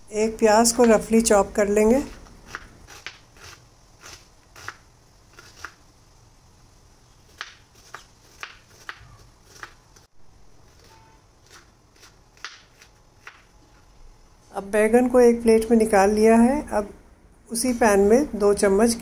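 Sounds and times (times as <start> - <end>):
knife chopping onion on board: 7.3 - 9.8.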